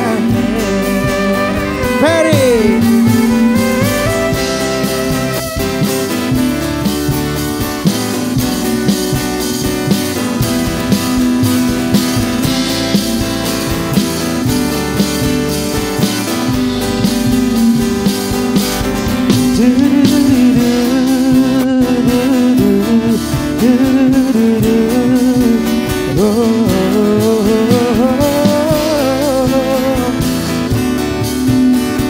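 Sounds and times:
person singing: 0.0 - 5.8, 19.2 - 32.0
bass: 0.0 - 32.0
drum kit: 0.0 - 32.0
strummed acoustic guitars: 0.0 - 32.0.

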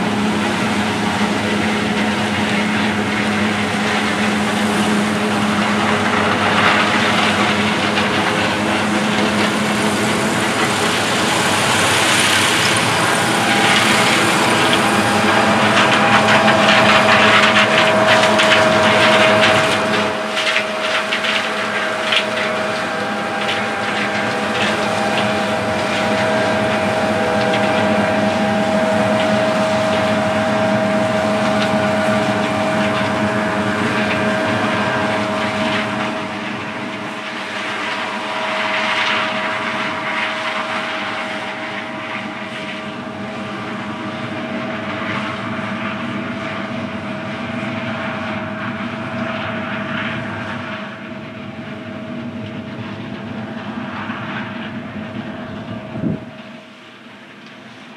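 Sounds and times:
combine harvester running: 0.0 - 57.9
constant machine whine: 0.0 - 57.9.

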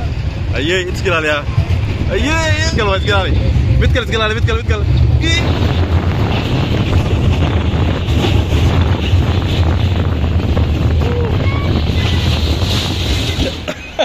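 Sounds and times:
wind buffeting microphone: 0.0 - 13.8.

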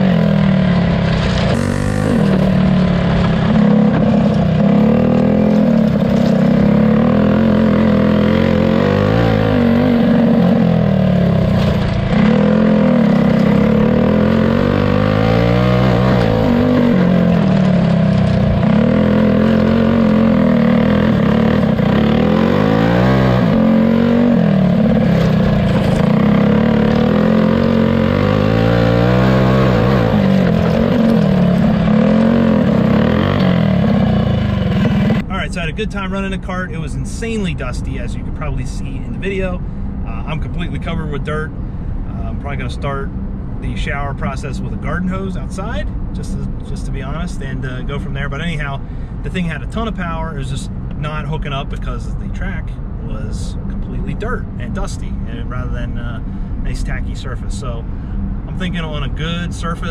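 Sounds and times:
go-kart engine revving: 0.0 - 35.3.

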